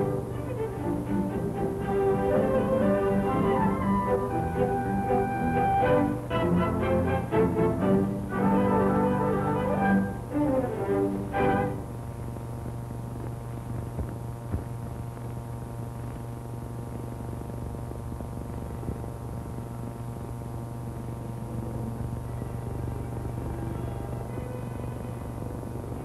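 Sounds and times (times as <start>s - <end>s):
orchestral strings: 0.0s - 11.9s
electrical mains hum: 0.0s - 26.0s.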